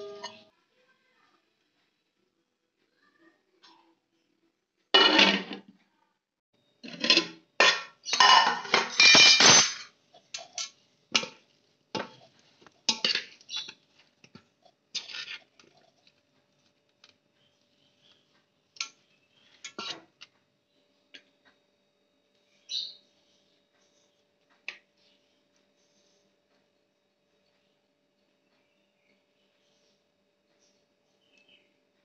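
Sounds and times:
utensils scraping metal vessel: 14.9 - 15.8.

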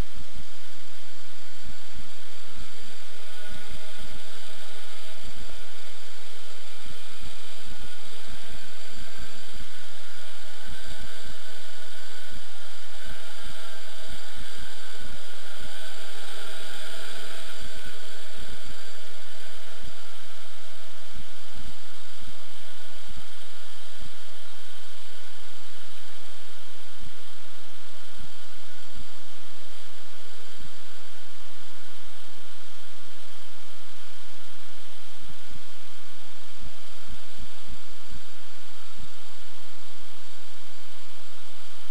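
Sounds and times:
drone propellers buzzing: 0.1 - 25.2.

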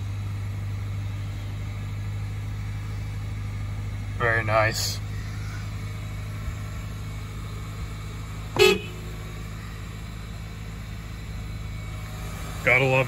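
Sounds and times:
car engine idling: 0.0 - 13.0
car horn toot: 8.5 - 9.2.

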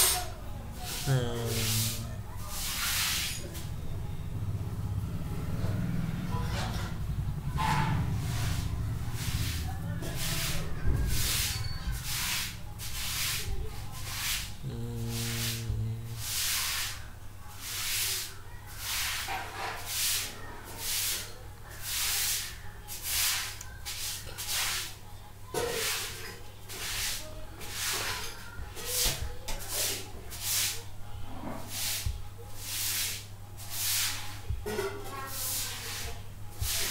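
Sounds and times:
rhythmic hissing bursts: 0.8 - 3.3, 11.1 - 17.0
faint low hum: 13.5 - 17.5.

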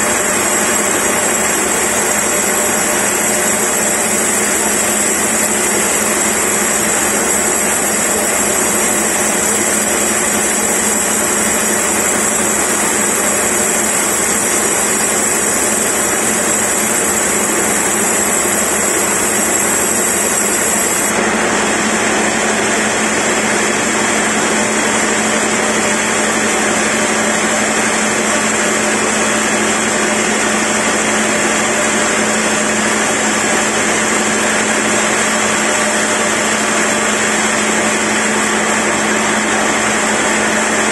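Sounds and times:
band saw cutting log: 0.0 - 21.2.

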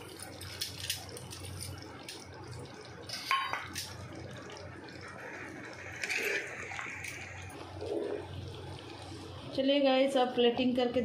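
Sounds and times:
low steady hum: 0.0 - 11.0
ladle stirring thick gravy: 4.5 - 9.2.

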